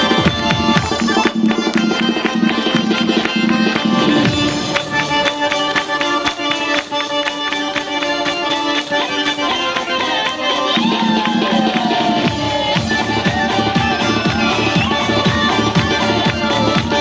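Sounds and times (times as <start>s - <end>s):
fast folk dance music: 0.0s - 17.0s.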